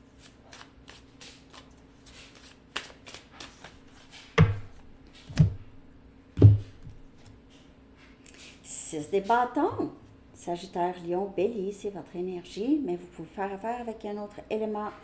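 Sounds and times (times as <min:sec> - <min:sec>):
cards being shuffled: 0:00.1 - 0:05.7
cards thumping on a table: 0:02.1 - 0:05.7, 0:06.4 - 0:07.3.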